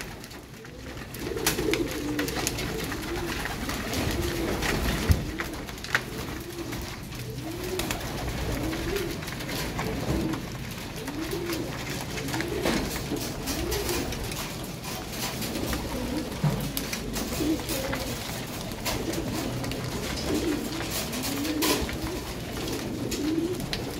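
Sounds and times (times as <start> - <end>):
beaks pecking grain: 0.0 - 23.9
pigeons cooing: 0.0 - 23.9.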